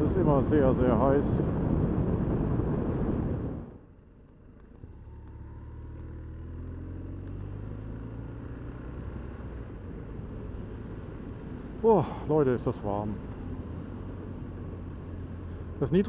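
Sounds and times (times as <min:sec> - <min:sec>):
wind noise: 0:00.0 - 0:03.9.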